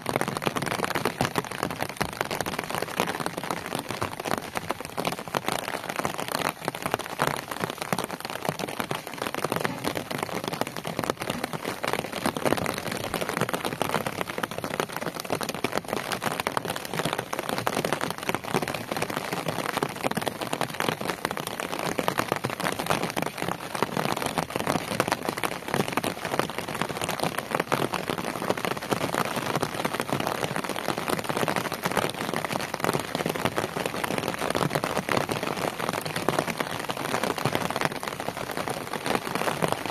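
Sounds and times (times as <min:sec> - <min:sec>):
rain on wet ground and puddles: 0:00.0 - 0:39.9.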